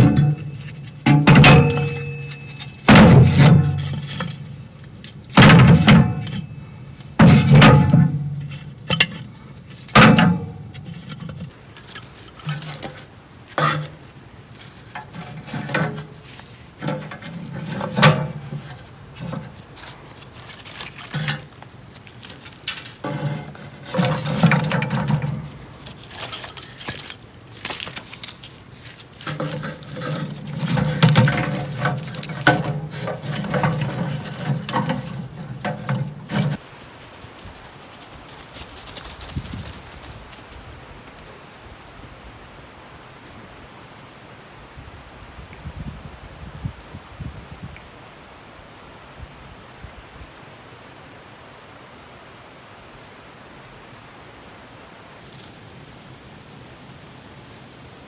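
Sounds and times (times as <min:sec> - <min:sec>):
wood knocking against metal stove: 0:00.0 - 0:04.3, 0:05.3 - 0:06.4
twigs rustling: 0:00.0 - 0:41.8, 0:55.2 - 0:55.8.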